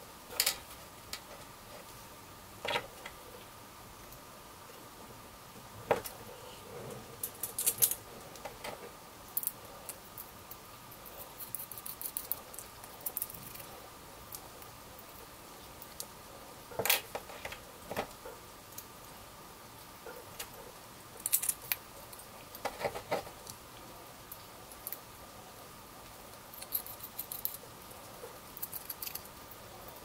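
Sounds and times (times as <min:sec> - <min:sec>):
faint steady hum: 0:00.0 - 0:30.0
small metal parts clicking: 0:07.2 - 0:08.0, 0:21.2 - 0:22.2, 0:26.5 - 0:27.6, 0:28.6 - 0:29.4.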